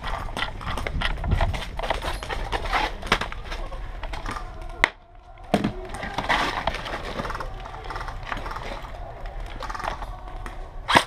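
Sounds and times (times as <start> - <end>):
gear rustling: 0.0 - 4.7.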